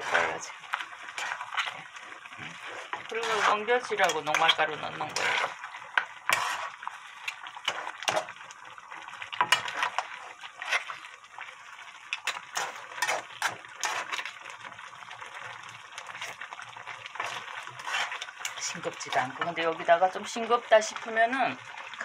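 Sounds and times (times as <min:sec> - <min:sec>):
spatula scraping a pan: 0:00.0 - 0:08.4, 0:09.3 - 0:11.1, 0:12.1 - 0:14.4, 0:16.0 - 0:16.5, 0:17.1 - 0:19.6
wet sauce sounds: 0:00.0 - 0:22.0.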